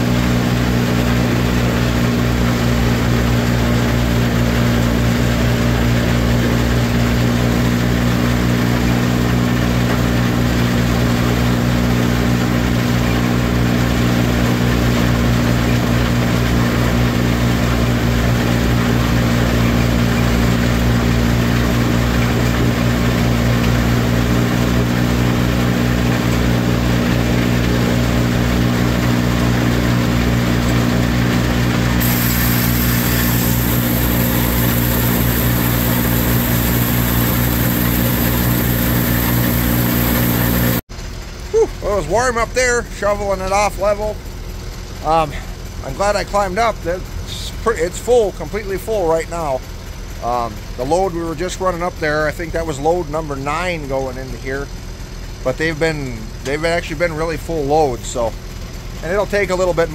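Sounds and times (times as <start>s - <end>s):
low mechanical drone: 0.0s - 59.9s
brighter hiss: 32.0s - 40.8s
silage rushing hiss: 32.0s - 40.8s.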